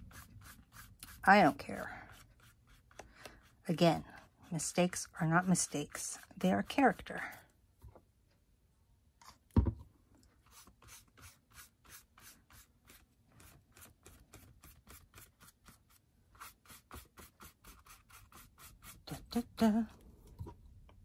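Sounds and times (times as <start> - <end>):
paintbrush brushing on paper: 0.0 - 7.4, 10.4 - 19.5.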